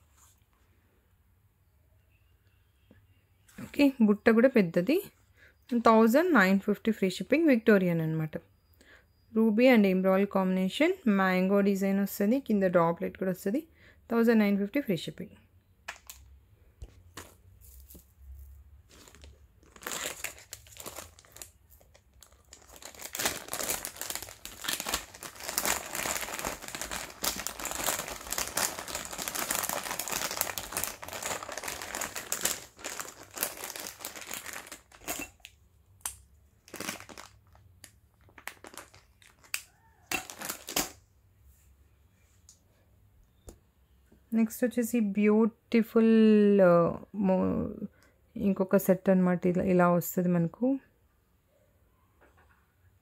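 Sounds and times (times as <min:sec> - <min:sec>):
plastic packets crinkling: 0:15.9 - 0:41.0.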